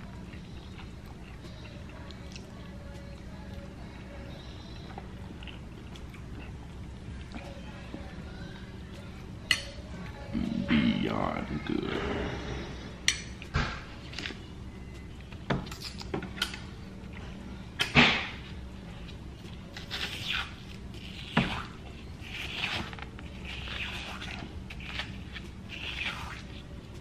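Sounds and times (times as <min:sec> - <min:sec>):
eating mouth sounds: 0:19.8 - 0:27.0.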